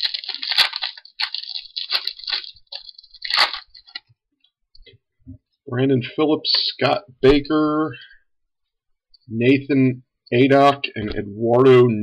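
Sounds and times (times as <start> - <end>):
foil wrapper tearing and crumpling: 0.0 - 4.1.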